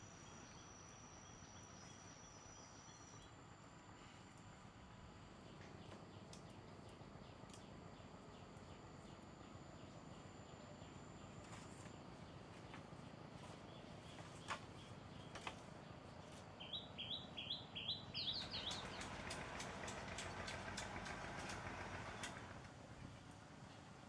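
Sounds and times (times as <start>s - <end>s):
bird chirping: 5.4s - 19.2s
bamboo knocking and clicking: 15.3s - 15.7s.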